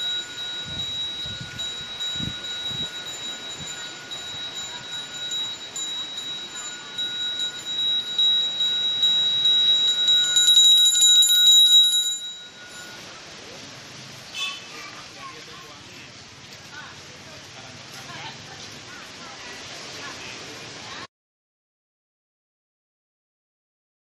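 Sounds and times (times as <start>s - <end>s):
small hand bell ringing: 0.0s - 13.2s.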